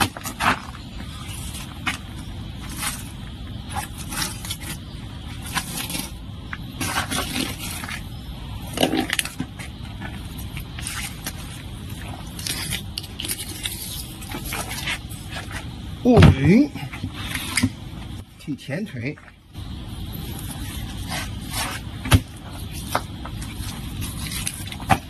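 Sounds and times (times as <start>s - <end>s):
low background hum: 0.0s - 25.0s.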